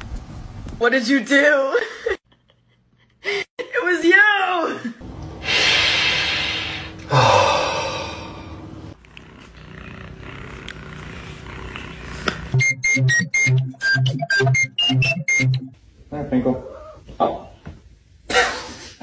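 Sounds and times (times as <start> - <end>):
electronic beat with high beeps: 12.6 - 15.8.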